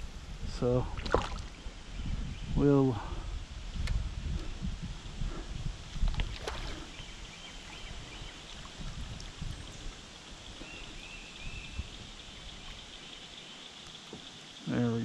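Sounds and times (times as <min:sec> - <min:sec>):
water lapping against hull: 0:00.9 - 0:01.7, 0:05.2 - 0:13.3
fish splashing at surface: 0:01.0 - 0:01.5.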